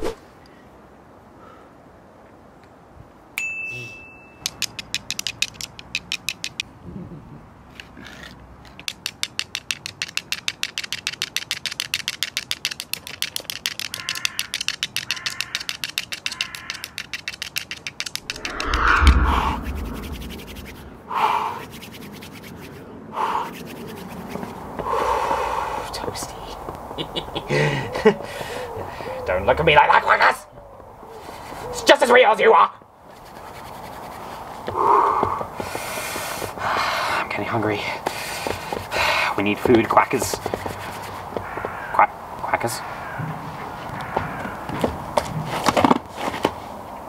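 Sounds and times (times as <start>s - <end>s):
heavy low thud: 18.3s - 21.0s
short loud sounds: 18.3s - 21.0s.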